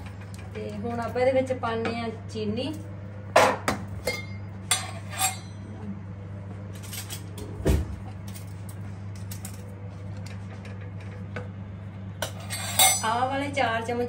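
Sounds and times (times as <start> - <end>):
steady low hum: 0.0 - 14.0
kitchen utensils clinking: 3.4 - 5.6, 12.2 - 13.2.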